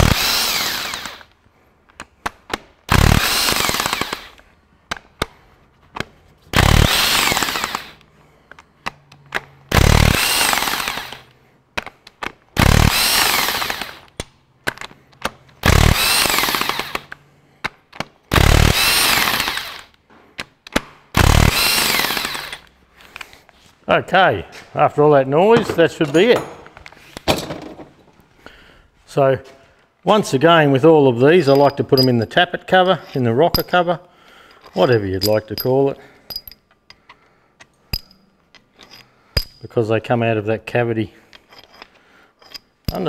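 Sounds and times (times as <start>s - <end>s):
impact wrench hammering: 15.6s - 17.1s, 18.3s - 19.8s, 25.6s - 27.8s, 31.4s - 32.2s, 33.5s - 33.8s, 35.2s - 36.6s, 37.9s - 38.2s, 38.9s - 39.6s, 42.4s - 43.0s.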